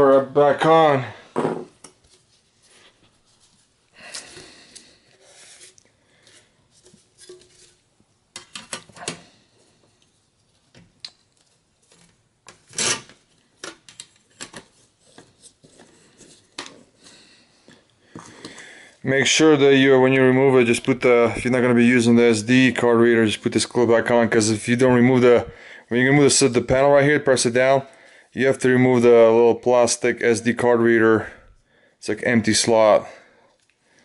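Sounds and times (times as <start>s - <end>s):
plastic cover clicking and snapping: 13.6s - 14.7s.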